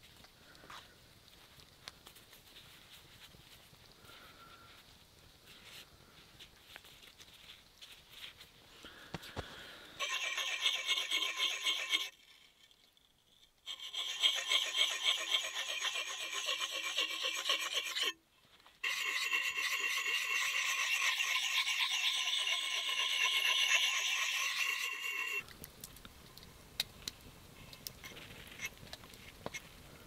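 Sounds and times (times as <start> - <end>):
axe blade scraping on sharpener: 10.0 - 12.1, 13.7 - 18.2, 18.8 - 25.4.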